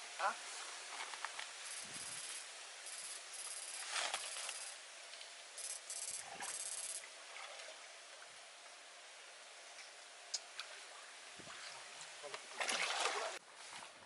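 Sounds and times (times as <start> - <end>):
electrofishing unit hissing buzz: 1.4 - 7.1
water sloshing: 10.5 - 14.0.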